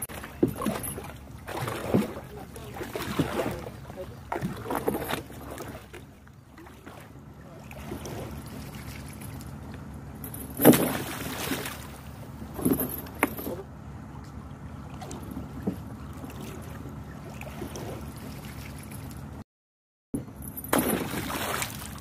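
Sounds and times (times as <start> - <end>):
water splashing: 0.0 - 9.7, 10.5 - 13.5, 14.4 - 19.3, 20.7 - 22.0
metal chain rattling: 10.2 - 11.0, 12.5 - 13.6.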